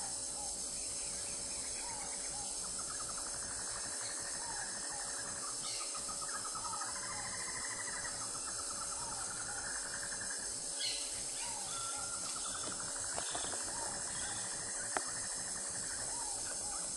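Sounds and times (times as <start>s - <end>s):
insects buzzing and trilling: 0.0s - 16.9s.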